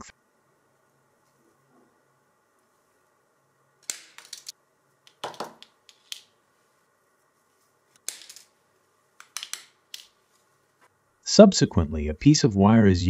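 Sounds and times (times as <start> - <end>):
wire cutters snapping through wire: 3.8 - 6.3
tool and wire clicking: 9.2 - 10.2.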